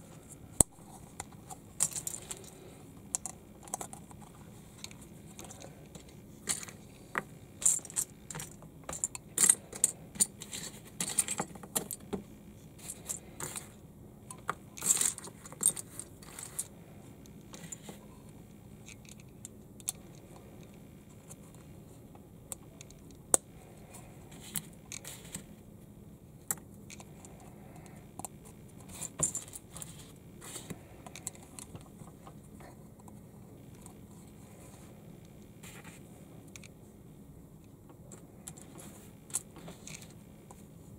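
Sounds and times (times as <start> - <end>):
plastic bricks clicking and rattling: 0.6 - 12.2, 12.8 - 16.7.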